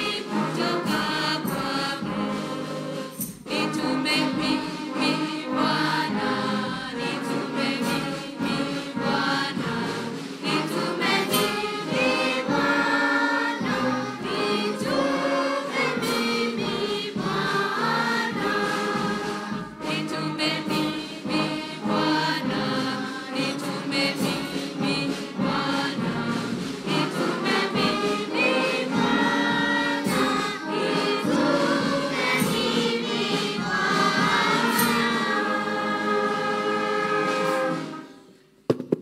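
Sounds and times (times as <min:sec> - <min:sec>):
voices singing along: 0:00.0 - 0:38.3
brass band playing hymn: 0:00.0 - 0:38.4
knock: 0:38.7 - 0:39.0.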